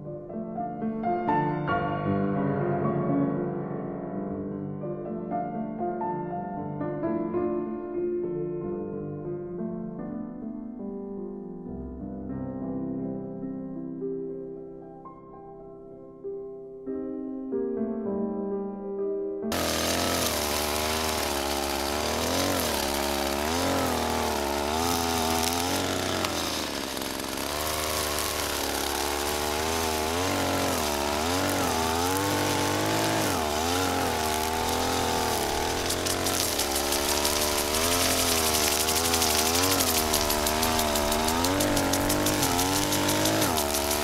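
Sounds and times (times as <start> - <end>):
string trimmer engine revving: 19.5 - 44.0.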